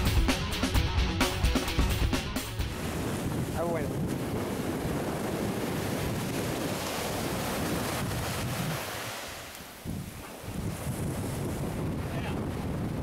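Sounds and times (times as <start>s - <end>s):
surf washing up the shore: 2.6s - 13.0s
wind buffeting the microphone: 2.7s - 13.0s.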